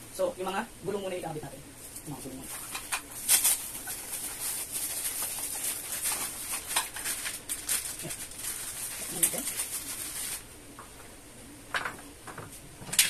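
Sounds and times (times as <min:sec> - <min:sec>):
plastic packaging crinkling: 0:01.9 - 0:10.5.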